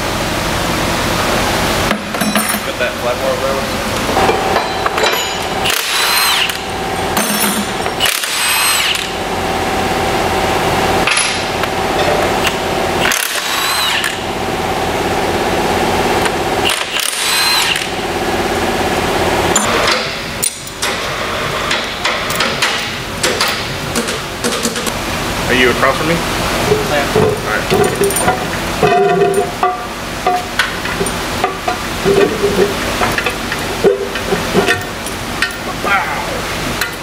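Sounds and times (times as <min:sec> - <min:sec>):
power tool whining: 0:05.5 - 0:10.4, 0:11.2 - 0:14.3, 0:16.1 - 0:19.7.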